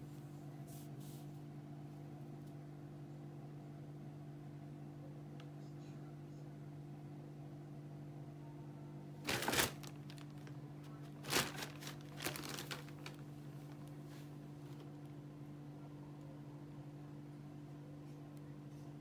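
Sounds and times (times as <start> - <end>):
plastic bags crinkling: 9.2 - 15.0.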